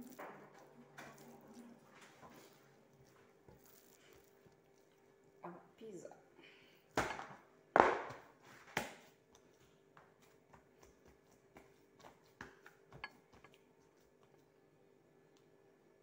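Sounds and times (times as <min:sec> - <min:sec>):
dough thumping in plastic basin: 0:07.0 - 0:09.1.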